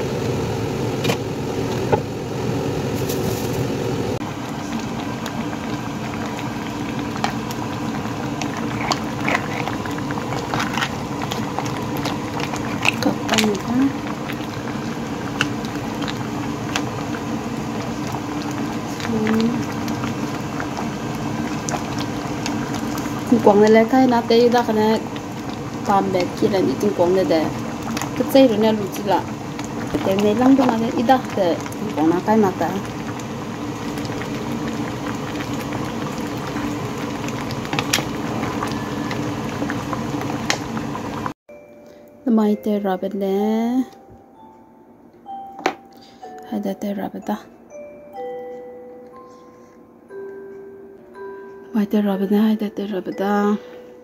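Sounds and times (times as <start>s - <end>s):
steady low hum: 0.0s - 41.4s
stew bubbling in a pan: 0.0s - 41.4s
crackling pops: 32.9s - 41.3s.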